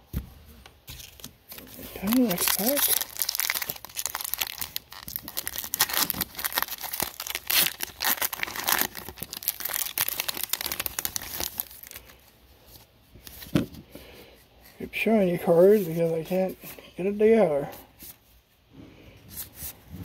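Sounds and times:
foil wrapper tearing and crinkling: 1.0s - 12.1s.

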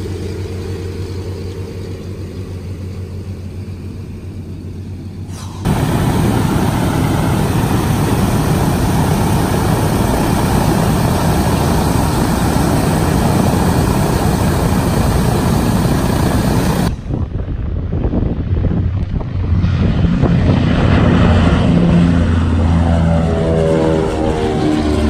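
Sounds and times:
radial aircraft engines idling: 0.0s - 17.3s.

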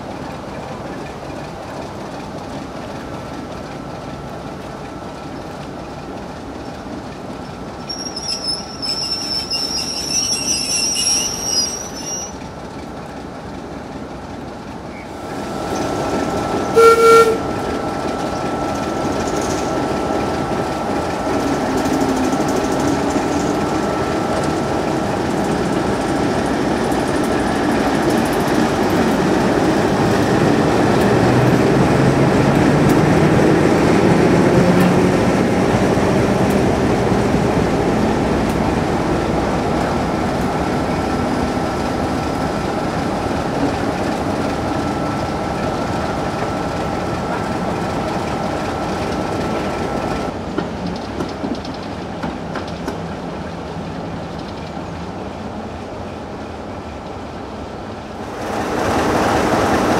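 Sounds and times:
train rumble: 0.0s - 59.9s
train wheels squealing: 7.4s - 12.5s
train horn blast: 16.6s - 17.8s.

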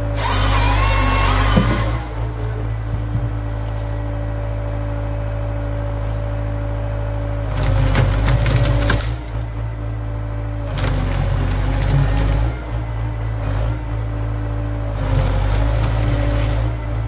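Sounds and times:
harsh mechanical processor noise: 0.0s - 17.0s
tractor engine running: 0.0s - 17.0s.

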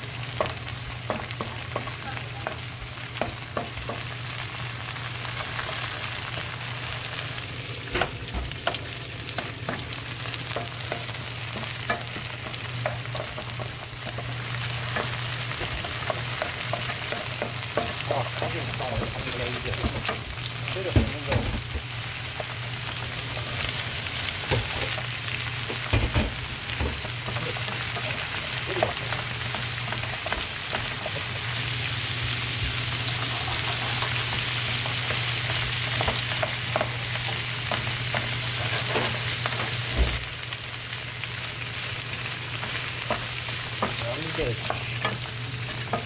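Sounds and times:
oil sizzling in a frying pan: 0.0s - 46.0s
spatula scraping a pan: 33.1s - 36.9s.

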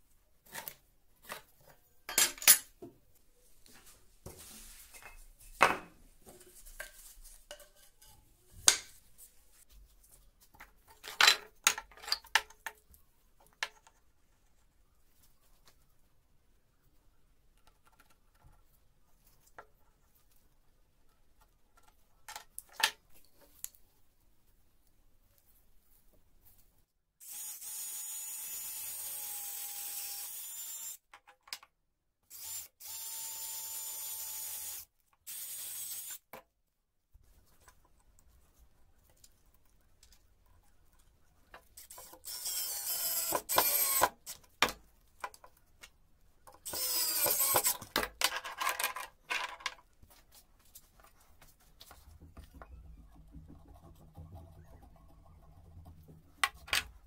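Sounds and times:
cordless drill boring into wood: 27.2s - 31.0s, 32.3s - 36.2s, 41.8s - 44.4s, 46.7s - 47.8s
spinning power tool: 41.8s - 44.1s, 46.7s - 47.8s.

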